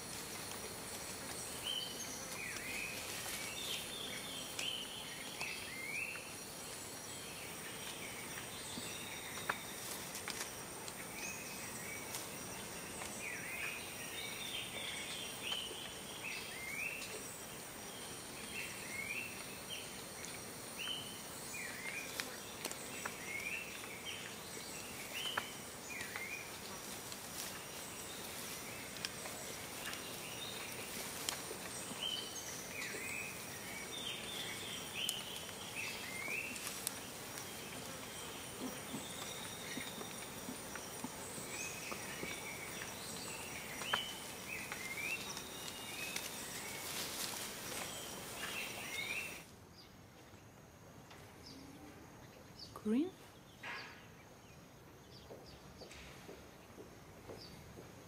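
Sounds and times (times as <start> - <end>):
birds chirping: 0.0 - 50.0.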